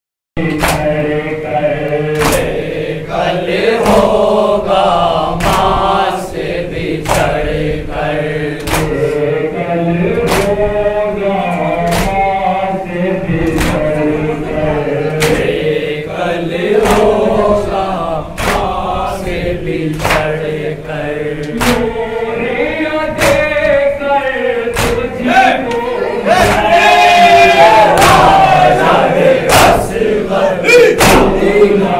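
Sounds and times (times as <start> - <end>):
men chanting together: 0.4 - 31.9
hands striking chests: 24.8 - 25.1.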